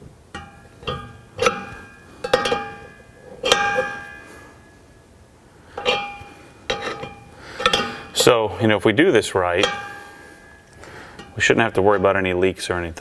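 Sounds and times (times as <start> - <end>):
wrench clinking on metal fitting: 0.4 - 4.2, 5.8 - 8.4.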